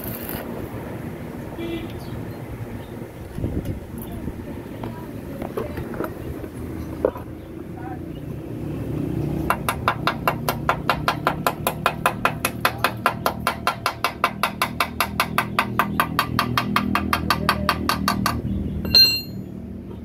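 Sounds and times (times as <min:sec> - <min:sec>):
steel tool tapping on metal: 0:11.7 - 0:19.4.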